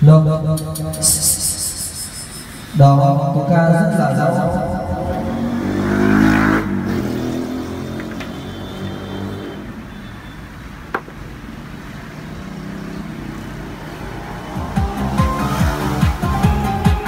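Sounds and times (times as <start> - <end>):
man's voice with echo: 0.0 - 5.6.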